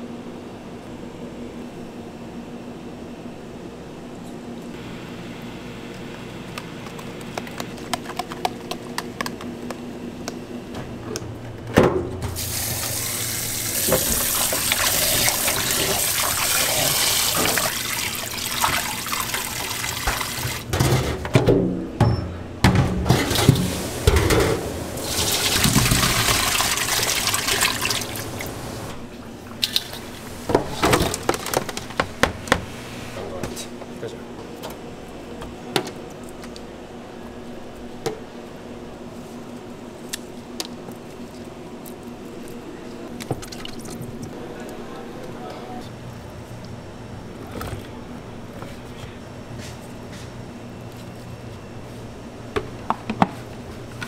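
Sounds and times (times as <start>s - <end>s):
tap water running into tub: 12.4s - 20.7s, 25.0s - 28.9s.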